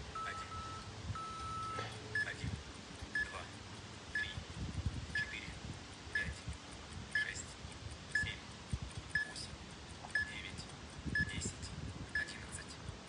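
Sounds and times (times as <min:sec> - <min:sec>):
wind rumble on microphone: 0:04.2 - 0:05.8, 0:08.7 - 0:09.1, 0:11.0 - 0:13.0.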